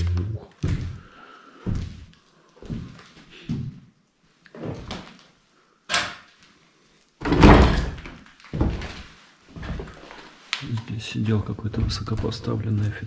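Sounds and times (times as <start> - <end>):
footsteps on papers and debris: 8.0 - 10.8.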